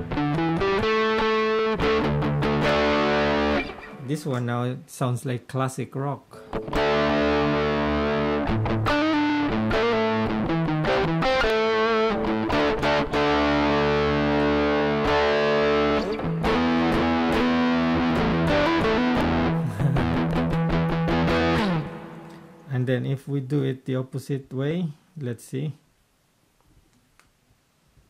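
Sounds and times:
distorted electric guitar chords: 0.0 - 4.1, 6.4 - 22.7.

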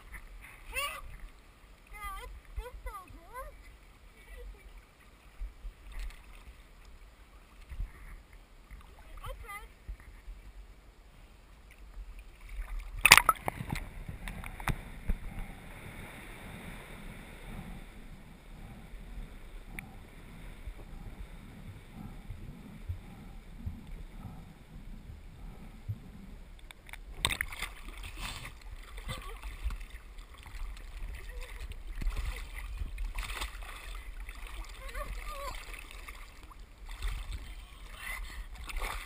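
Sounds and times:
underwater rumble and sloshing: 0.0 - 39.0
splash into water: 12.4 - 13.8, 27.2 - 39.0.

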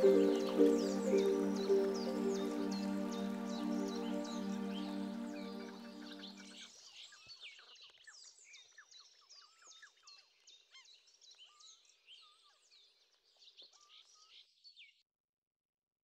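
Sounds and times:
birds chirping: 0.0 - 6.6.

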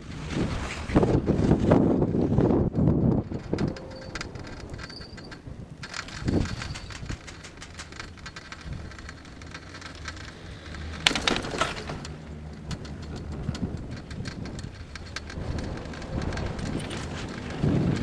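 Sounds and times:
chairlift rumbling: 0.0 - 18.0
crackling and clicking from lift: 0.0 - 18.0
rattling burst: 2.9 - 18.0.

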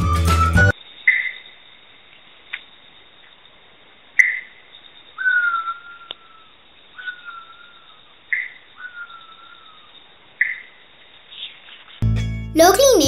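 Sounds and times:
owl whistling calls: 5.2 - 9.8.

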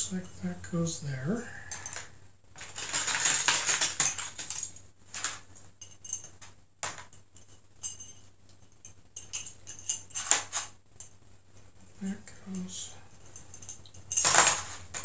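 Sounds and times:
metal bottle fittings jangling: 5.8 - 6.4, 7.3 - 10.7, 13.1 - 14.6.

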